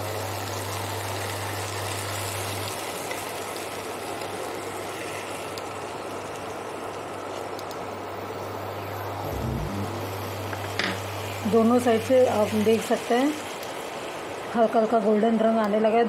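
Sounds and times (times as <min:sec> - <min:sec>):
chicken sizzling in oil: 0:00.0 - 0:08.5, 0:10.7 - 0:15.5
steady low hum: 0:07.8 - 0:16.0.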